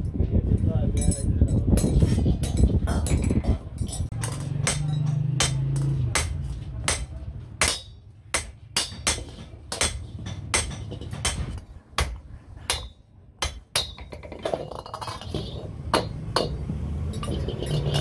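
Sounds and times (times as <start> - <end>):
hammer striking metal: 3.8 - 14.2, 15.3 - 18.0.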